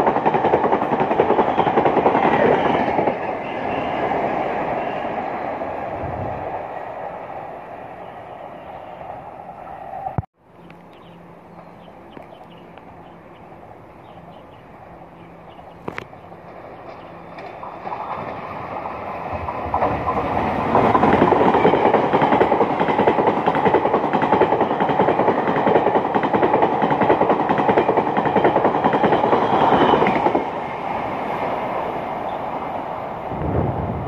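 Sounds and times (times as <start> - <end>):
train passing at speed: 0.0 - 34.0
rail clatter: 15.8 - 30.7.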